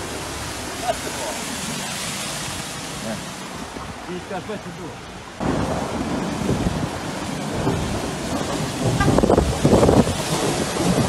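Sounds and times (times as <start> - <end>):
heavy rain: 0.0 - 11.0
running floodwater: 0.0 - 11.0
wind buffeting microphone: 5.4 - 11.0.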